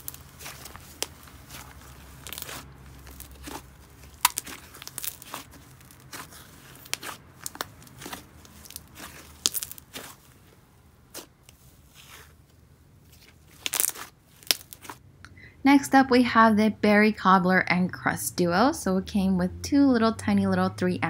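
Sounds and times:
slime crackling: 0:00.0 - 0:15.0.

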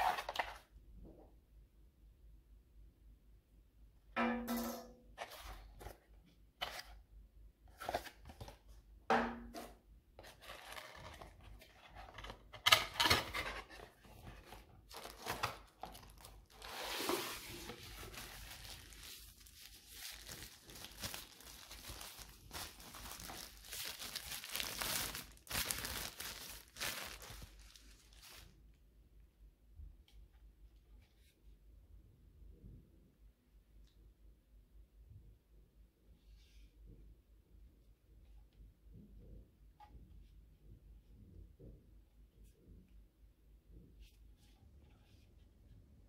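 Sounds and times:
cardboard scraping and rustling: 0:10.2 - 0:28.4.

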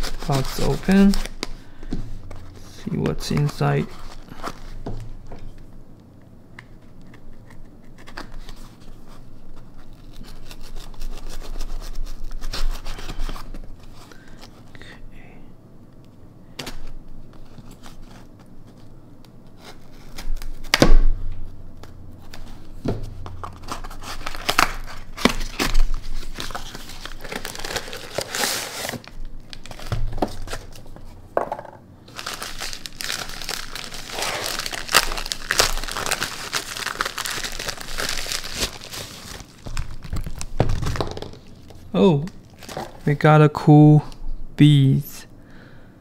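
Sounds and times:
paper crinkling and tearing: 0:00.0 - 0:01.5, 0:06.8 - 0:14.7, 0:19.6 - 0:20.7, 0:23.4 - 0:30.9, 0:32.1 - 0:41.0.

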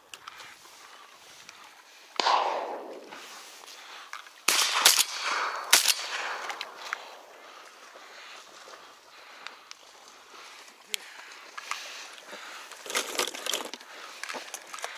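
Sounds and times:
shotgun shots with echo: 0:02.2 - 0:03.4, 0:04.5 - 0:07.3.

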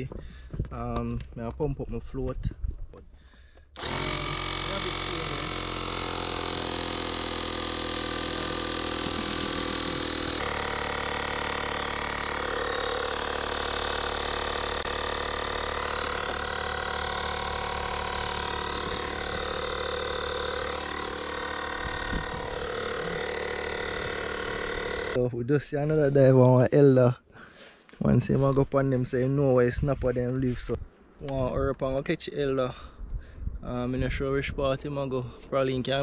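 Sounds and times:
electric air pump droning: 0:03.6 - 0:25.2.

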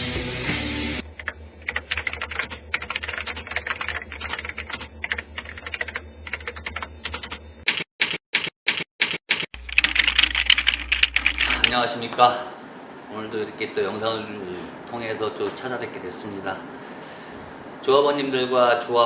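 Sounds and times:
sharp keystrokes: 0:01.2 - 0:11.8.

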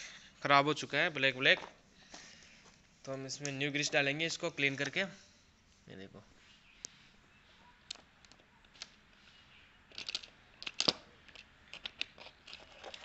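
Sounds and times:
metal parts clicking and clinking: 0:09.9 - 0:13.0.

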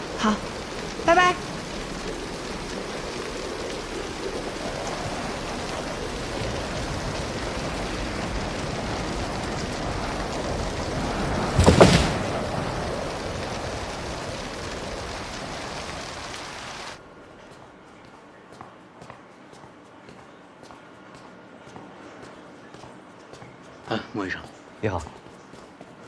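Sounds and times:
heavy rain falling: 0:00.0 - 0:17.0
thunder clap: 0:04.7 - 0:17.0.

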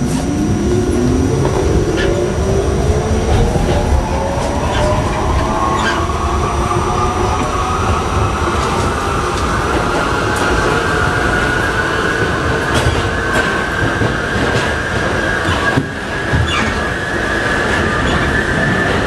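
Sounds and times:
train motors whining: 0:00.0 - 0:11.4.

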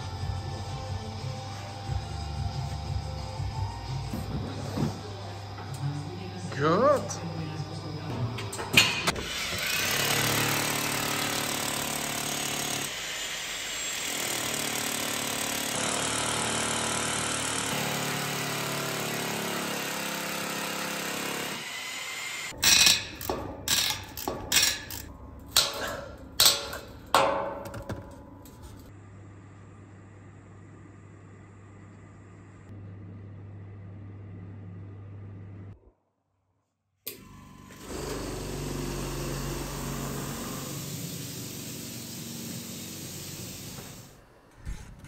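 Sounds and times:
hammer drill boring into concrete: 0:09.1 - 0:22.8.

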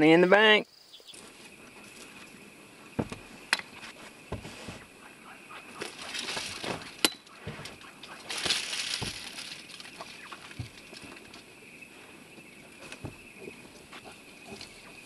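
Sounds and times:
rustling dry grass and brush: 0:01.1 - 0:15.0
boots stepping on rock: 0:03.0 - 0:04.9, 0:05.8 - 0:11.1, 0:12.9 - 0:14.2.

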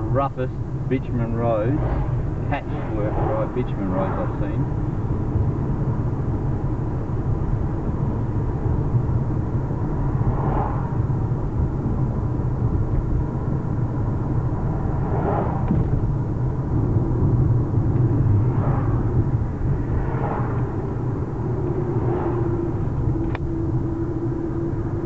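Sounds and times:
tyres on rough road: 0:00.0 - 0:25.0.

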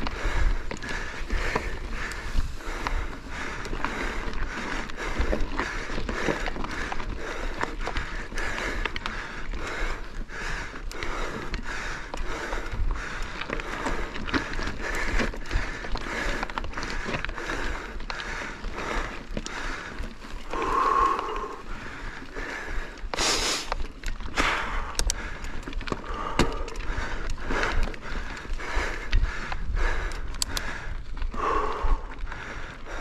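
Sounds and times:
wind rumble on microphone: 0:00.0 - 0:19.2
bike rattling over rocks: 0:00.0 - 0:33.0
person breathing hard: 0:00.0 - 0:33.0.

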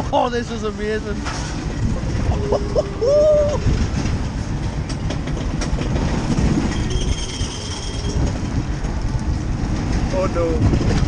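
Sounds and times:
roller coaster wheels rumbling on rails: 0:00.0 - 0:11.0.

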